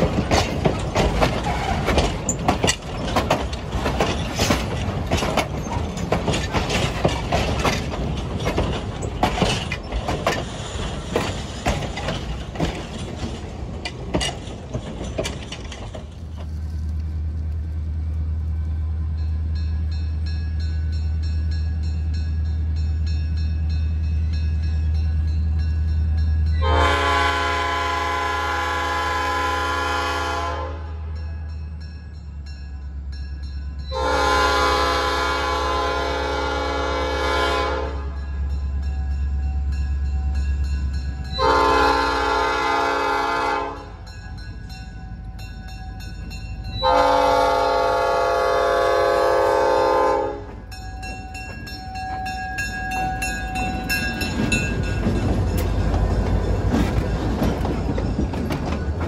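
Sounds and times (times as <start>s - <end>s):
train cars rumbling past: 0.0s - 59.0s
train horn blasts: 26.5s - 31.2s, 33.9s - 38.4s, 41.3s - 44.0s, 46.8s - 50.7s.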